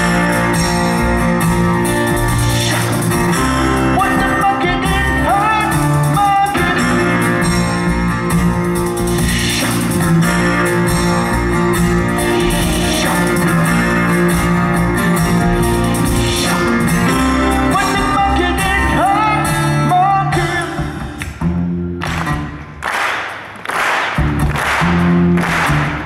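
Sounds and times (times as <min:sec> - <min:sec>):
live rock band playing: 0:00.0 - 0:22.8, 0:24.0 - 0:26.0
person singing: 0:02.1 - 0:07.5, 0:09.1 - 0:11.4, 0:12.0 - 0:21.2.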